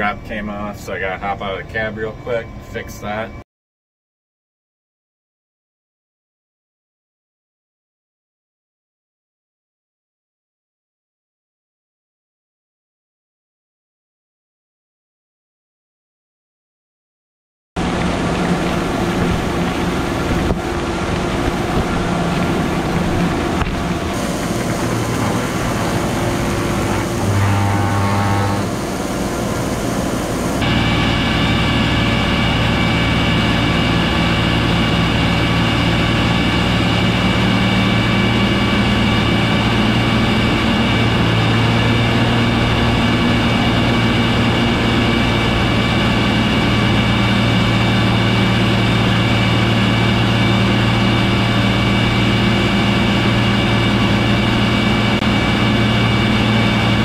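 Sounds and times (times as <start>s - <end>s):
high steady whine: 0.0s - 3.4s, 17.8s - 57.0s
diesel engine droning: 17.8s - 57.0s
air blowing: 18.2s - 34.1s.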